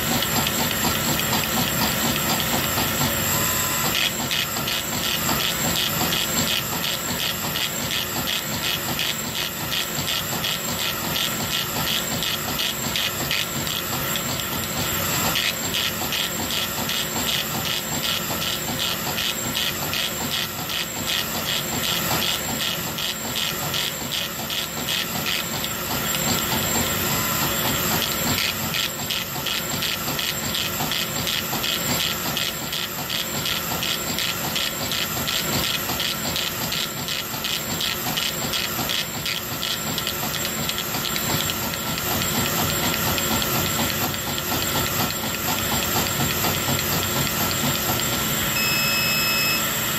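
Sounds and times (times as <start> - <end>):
thin high whine: 3.0 - 4.1, 48.3 - 49.9
laser engraver head sweeping: 48.4 - 49.9.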